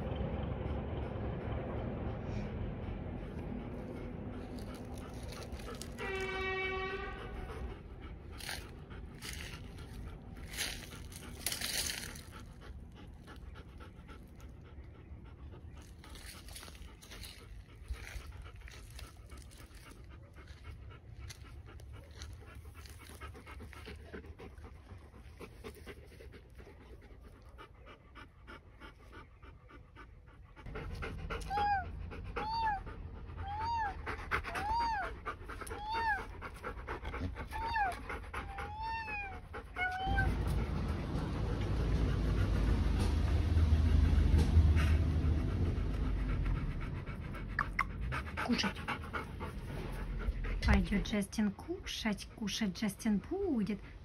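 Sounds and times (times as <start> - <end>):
dog panting: 0.0 - 54.0.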